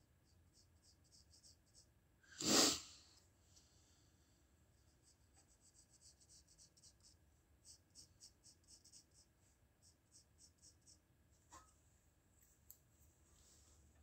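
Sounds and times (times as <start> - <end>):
pencil scratching on paper: 0.2 - 2.7, 4.8 - 11.0.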